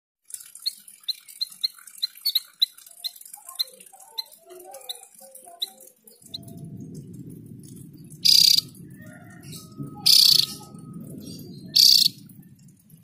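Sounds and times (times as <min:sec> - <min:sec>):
soft warbled bird notes: 0:00.5 - 0:12.7
low rumble: 0:06.2 - 0:13.0.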